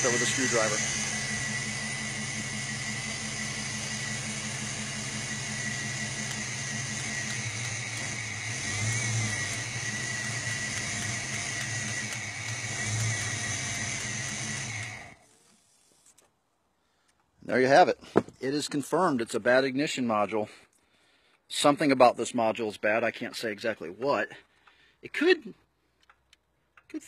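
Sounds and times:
car engine idling roughly: 0:00.0 - 0:15.2
high whine: 0:00.0 - 0:15.2.

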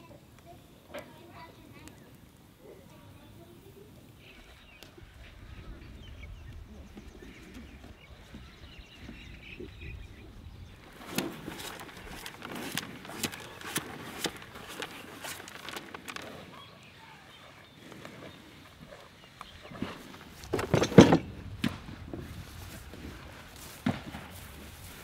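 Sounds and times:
cows crunching feed: 0:10.7 - 0:25.0.

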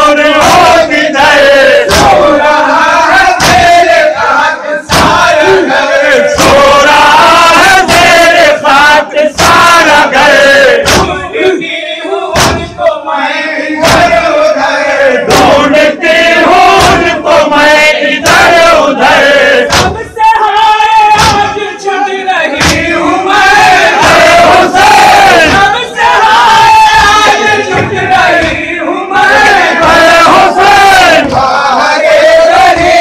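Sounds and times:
men chanting in unison: 0:00.0 - 0:33.0
chest-beating slaps: 0:01.8 - 0:08.5, 0:09.2 - 0:11.3, 0:12.4 - 0:12.9, 0:13.8 - 0:14.3, 0:15.3 - 0:20.1, 0:21.2 - 0:21.7, 0:22.5 - 0:25.9, 0:26.9 - 0:28.8, 0:29.4 - 0:31.6, 0:32.4 - 0:33.0.

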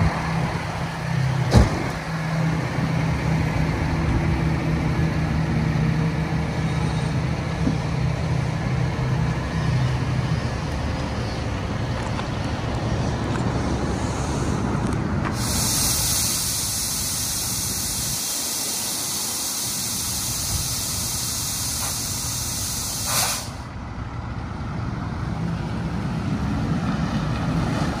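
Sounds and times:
diesel truck engine running: 0:00.0 - 0:28.0
air brake hiss: 0:15.3 - 0:23.7.

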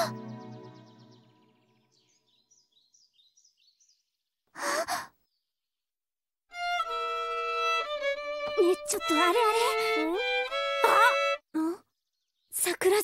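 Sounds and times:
violin long held notes: 0:00.0 - 0:01.5, 0:06.6 - 0:11.4.

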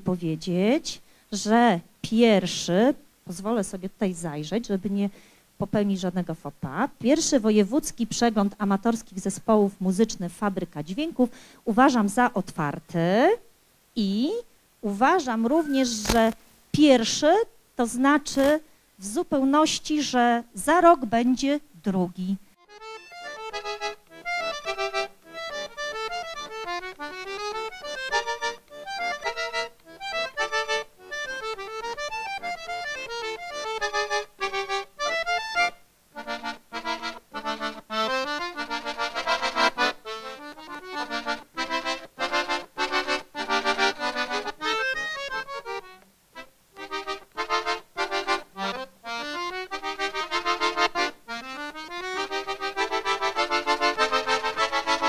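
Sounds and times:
button accordion melody: 0:15.2 - 0:16.3, 0:22.6 - 0:55.0.

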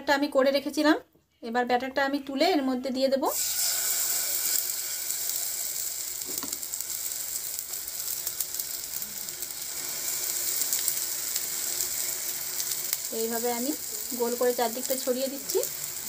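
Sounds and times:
batter sizzling in hot oil: 0:03.3 - 0:16.0.

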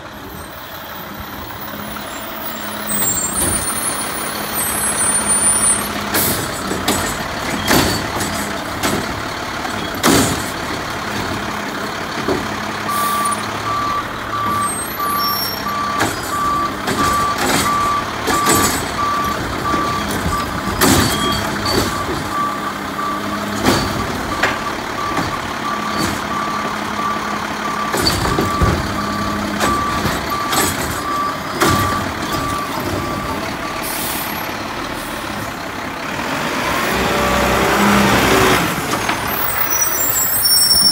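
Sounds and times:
diesel engine running: 0:00.0 - 0:40.9
clanks and bangs of cart and arm: 0:05.8 - 0:12.8, 0:14.5 - 0:33.8.

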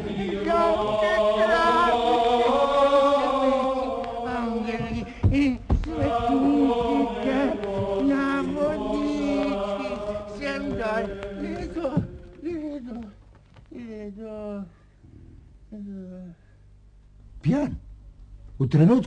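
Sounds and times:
voices chanting: 0:00.0 - 0:13.2
heavy thump: 0:04.8 - 0:06.3.

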